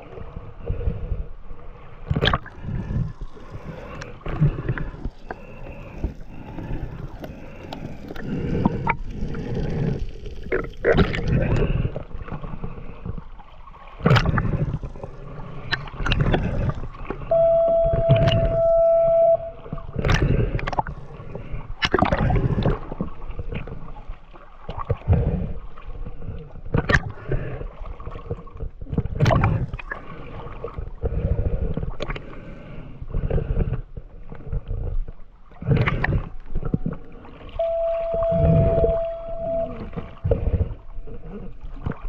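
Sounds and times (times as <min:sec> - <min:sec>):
water splashes: 0:00.0 - 0:33.0, 0:33.7 - 0:42.0
seawater sloshing and gurgling: 0:00.0 - 0:42.0
faint steady hum: 0:14.4 - 0:21.8, 0:35.9 - 0:42.0.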